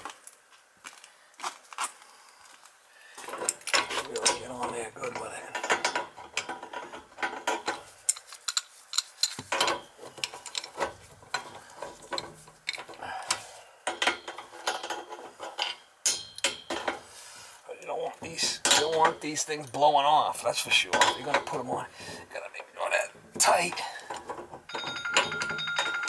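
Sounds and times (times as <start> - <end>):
wrench metallic clicks and scrapes: 3.2 - 17.0.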